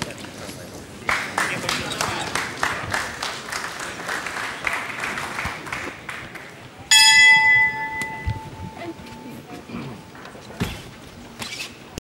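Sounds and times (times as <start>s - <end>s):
crowd clapping in unison: 1.0s - 6.7s
boxing ring bell ringing: 6.9s - 9.0s.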